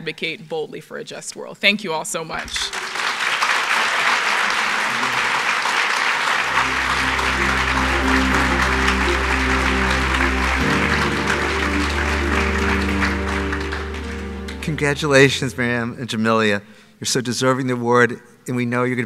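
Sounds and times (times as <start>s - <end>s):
audience applauding: 2.5s - 15.8s
instrumental music with bass line: 6.4s - 15.9s.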